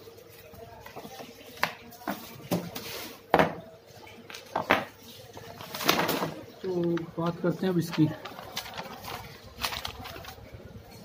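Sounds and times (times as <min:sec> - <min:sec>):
paper rustling: 0:05.4 - 0:11.0.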